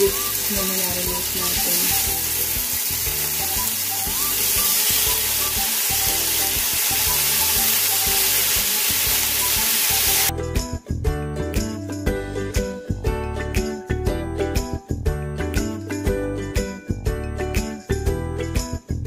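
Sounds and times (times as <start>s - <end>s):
meat sizzling in a frying pan: 0.0s - 10.3s
background music: 0.0s - 19.0s.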